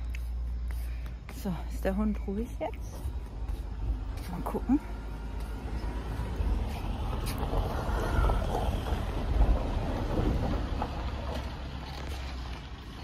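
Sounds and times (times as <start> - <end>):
wind buffeting microphone: 2.2 - 12.1.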